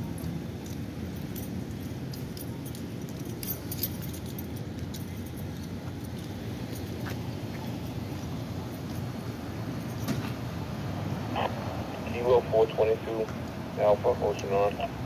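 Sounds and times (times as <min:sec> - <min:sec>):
keys jingling: 0:00.0 - 0:07.1.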